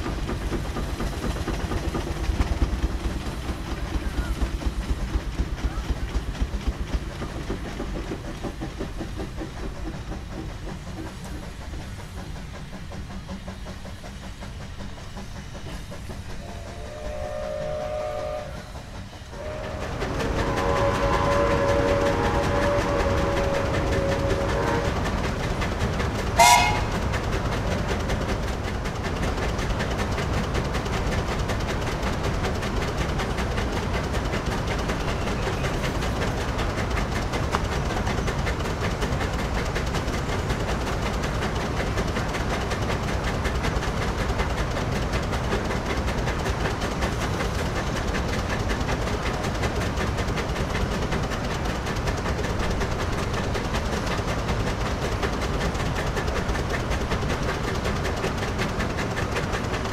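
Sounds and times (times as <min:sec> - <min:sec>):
steam engine exhaust beating: 0:00.0 - 0:59.9
steam whistle blowing: 0:16.4 - 0:25.0, 0:26.4 - 0:27.0.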